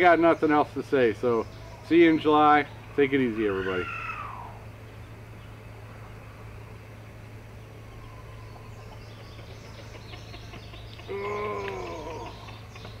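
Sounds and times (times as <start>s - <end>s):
steady low hum: 0.0s - 13.0s
drawn-out animal call: 7.9s - 13.0s.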